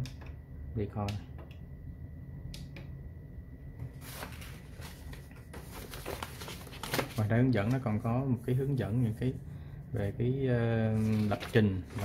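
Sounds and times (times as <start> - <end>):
manual pages rustling: 3.9 - 9.2, 10.8 - 12.0.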